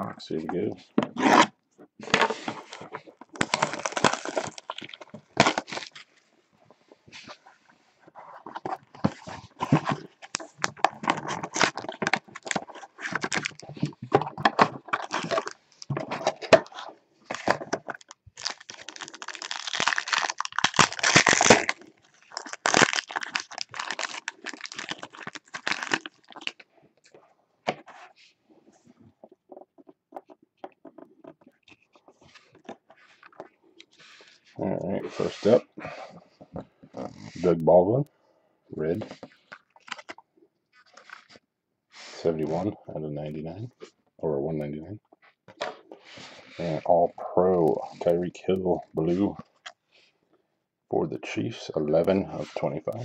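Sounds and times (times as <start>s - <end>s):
foil wrapper crinkling and tearing: 2.7s - 6.2s, 8.5s - 26.6s, 39.3s - 41.4s
cards rustling: 8.4s - 26.6s.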